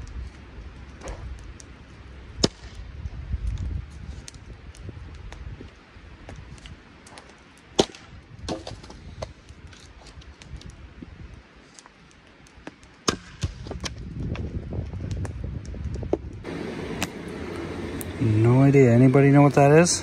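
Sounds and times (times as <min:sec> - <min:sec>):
axe chopping firewood: 0:07.1 - 0:09.3, 0:12.6 - 0:14.4.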